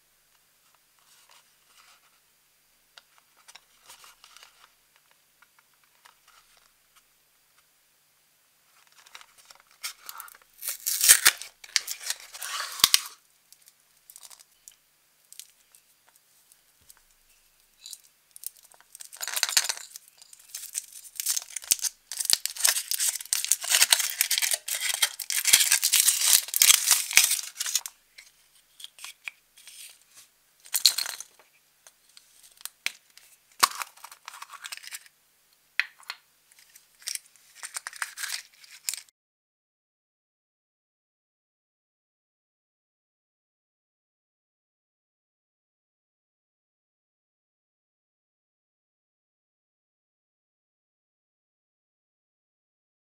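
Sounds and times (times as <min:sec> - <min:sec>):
cardboard box opened: 0:09.8 - 0:13.2, 0:20.5 - 0:27.9
foil wrapper crinkling: 0:09.8 - 0:14.7, 0:17.8 - 0:30.0, 0:36.6 - 0:39.0.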